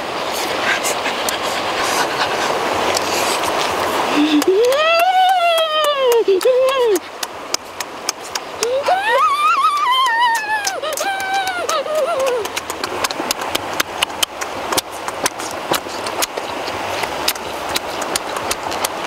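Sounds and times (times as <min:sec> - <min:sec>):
wet chewing and lip-smacking: 0:00.3 - 0:19.0
child saying ooh: 0:08.6 - 0:12.4.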